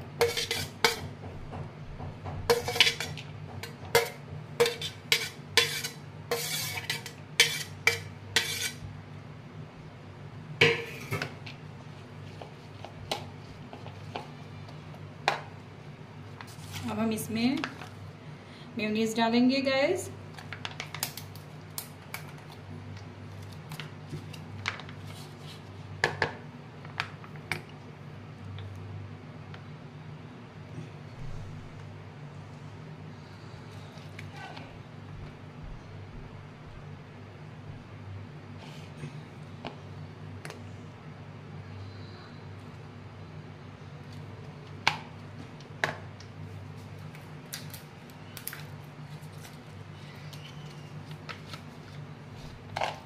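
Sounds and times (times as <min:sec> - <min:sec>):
spoon scraping a plate: 0:00.2 - 0:01.1, 0:02.5 - 0:08.8.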